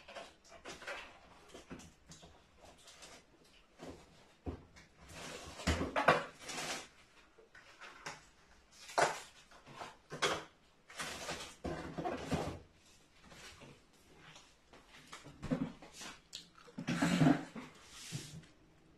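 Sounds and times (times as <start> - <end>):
containers rustling and clinking: 0.0 - 12.7.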